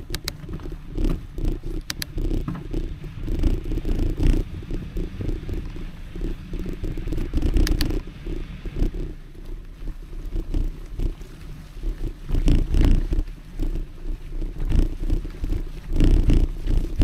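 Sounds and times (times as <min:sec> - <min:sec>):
sharp clicks: 0:00.0 - 0:05.8, 0:06.5 - 0:08.0
bike rattling: 0:00.0 - 0:17.0
bike tyres on dirt trail: 0:00.0 - 0:17.0.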